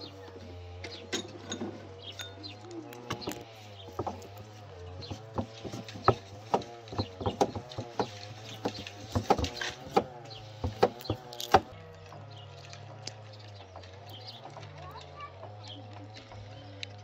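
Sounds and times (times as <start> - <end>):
wooden knocks and clacks: 3.9 - 4.3, 5.0 - 11.7.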